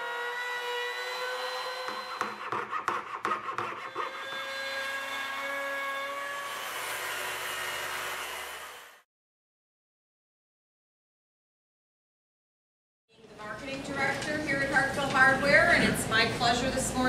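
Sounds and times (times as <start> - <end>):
power tools cutting wood: 0.0 - 9.1.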